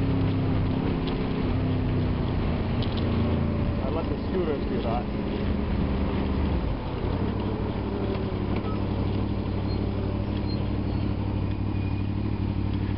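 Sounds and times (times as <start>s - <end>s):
road and traffic noise: 0.0s - 12.9s
motorcycle engine idling: 6.8s - 12.9s.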